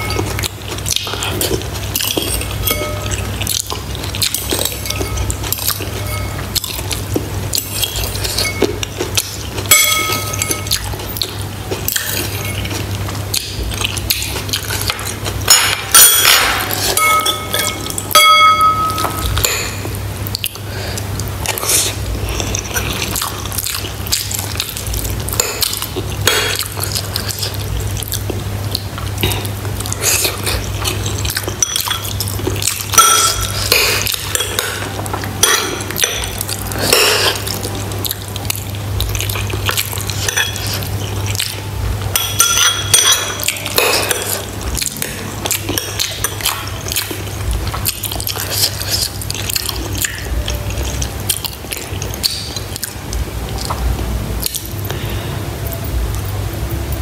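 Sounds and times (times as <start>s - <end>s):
close-miked eating: 0.0s - 57.0s
liquid sounds: 0.0s - 57.0s
spoon clinking ceramic bowl: 2.0s - 3.2s, 4.4s - 6.5s, 9.7s - 10.8s, 14.9s - 19.5s, 31.5s - 32.2s, 32.9s - 33.5s, 42.1s - 44.3s.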